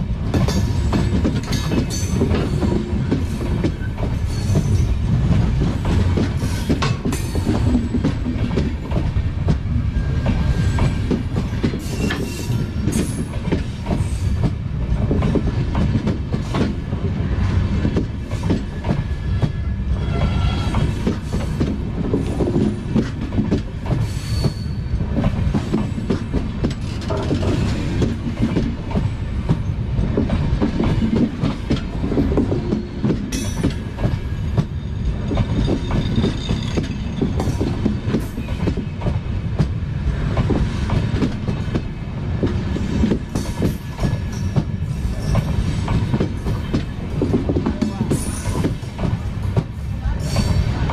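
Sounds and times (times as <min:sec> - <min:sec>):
heavy steady train rumble: 0:00.0 - 0:50.9
faint high wheel squeal: 0:24.0 - 0:25.0.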